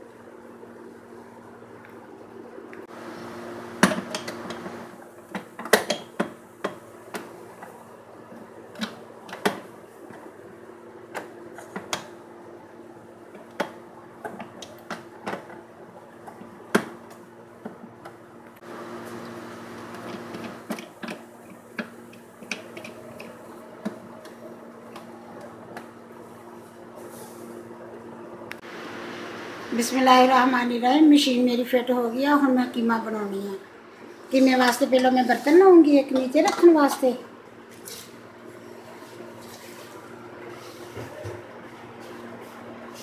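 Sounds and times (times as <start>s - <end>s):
steady low hum: 17.4s - 34.9s.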